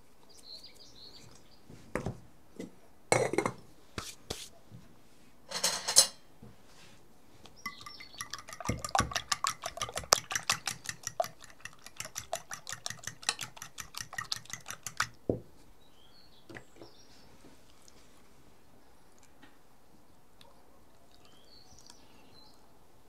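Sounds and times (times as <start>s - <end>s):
utensil clinking against glass bowl: 7.6s - 15.2s.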